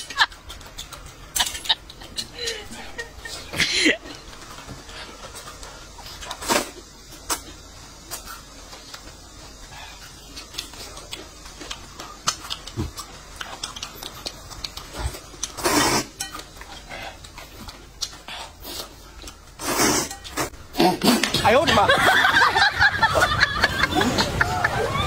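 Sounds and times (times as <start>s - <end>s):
slurping noodles: 12.4s - 16.2s, 16.8s - 21.4s.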